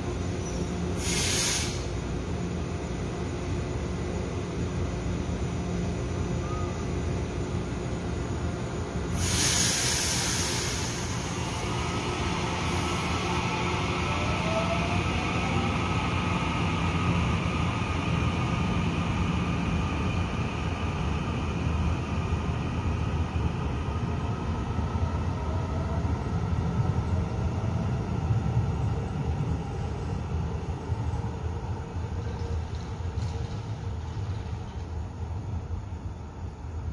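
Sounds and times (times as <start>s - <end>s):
train wheels rumbling on rails: 9.2s - 36.9s.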